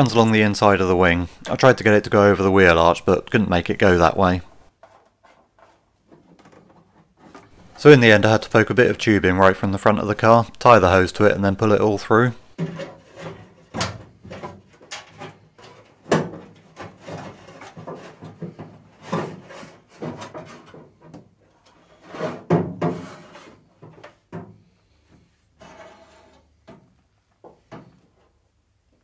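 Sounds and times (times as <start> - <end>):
plastic hose rubbing and scraping: 3.1 - 8.5, 11.6 - 26.9.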